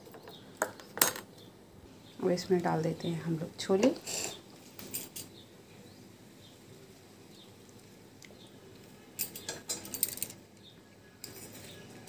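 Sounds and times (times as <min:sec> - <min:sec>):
metal spoon scraping plate: 0:03.9 - 0:04.4.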